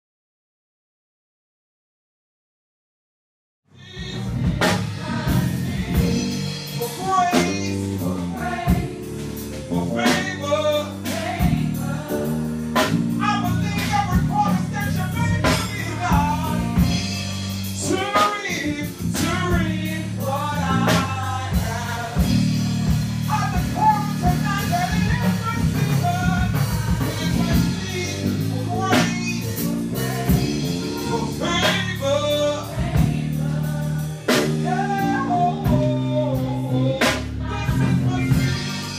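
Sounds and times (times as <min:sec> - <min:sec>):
gospel singers: 0:03.8 - 0:38.9
sustained low bass notes: 0:03.8 - 0:38.9
drum strikes: 0:04.0 - 0:34.8.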